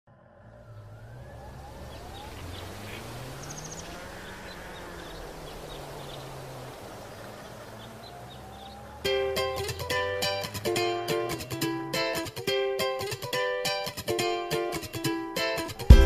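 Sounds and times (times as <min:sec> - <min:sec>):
motorcycle engine at low revs: 0:00.1 - 0:10.6
wind and road noise: 0:00.1 - 0:12.3
faint bird chirps: 0:00.4 - 0:09.9.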